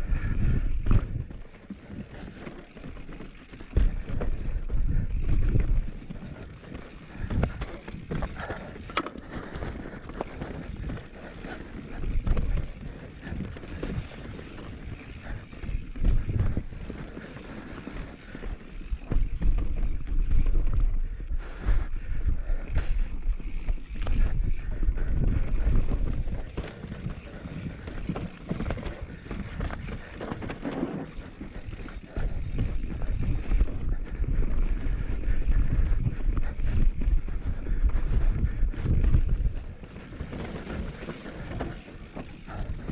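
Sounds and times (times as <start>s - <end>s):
wind buffeting microphone: 0.0s - 1.4s, 3.7s - 8.7s, 18.8s - 42.9s
bike tyres rumbling on rocky trail: 0.0s - 42.9s.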